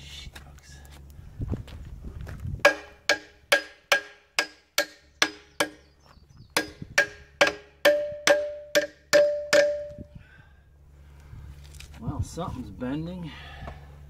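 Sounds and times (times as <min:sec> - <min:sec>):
hammer striking steel: 0:02.7 - 0:05.8, 0:06.6 - 0:10.0.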